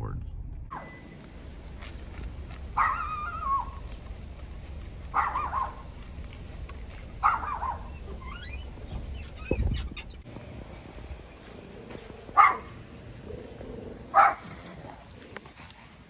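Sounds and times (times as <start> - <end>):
low steady rumble: 0.0 - 15.4
small dog barking: 2.8 - 3.8, 5.1 - 5.9, 7.2 - 8.0, 12.3 - 12.8, 14.1 - 14.5.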